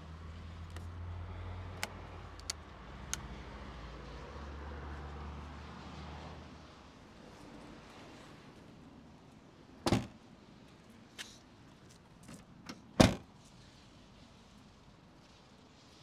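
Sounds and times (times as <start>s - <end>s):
light clicks: 1.8s - 3.3s
van fittings clunking shut: 9.9s - 10.2s, 12.7s - 13.2s.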